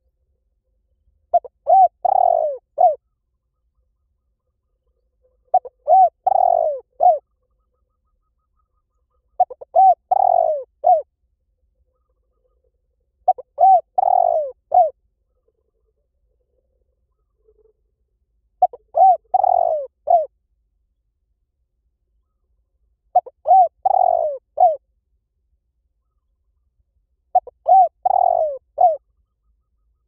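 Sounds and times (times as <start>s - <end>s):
dove cooing: 1.3s - 3.0s, 5.5s - 7.3s, 9.3s - 11.1s, 13.2s - 15.0s, 18.6s - 20.3s, 23.1s - 24.8s, 27.3s - 29.0s.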